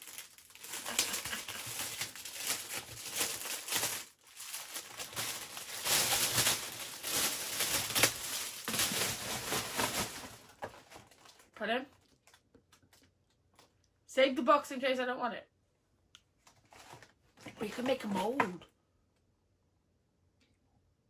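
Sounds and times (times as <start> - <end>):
plastic bag crinkling: 0.0 - 13.7.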